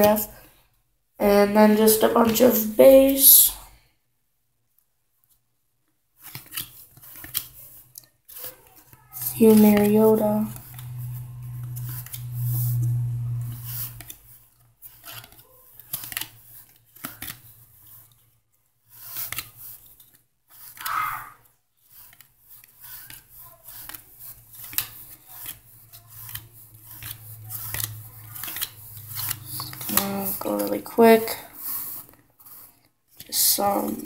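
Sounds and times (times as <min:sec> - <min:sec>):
trading cards being flipped: 0:06.2 - 0:18.0, 0:19.0 - 0:21.2, 0:21.9 - 0:34.0
low hum: 0:09.3 - 0:14.2.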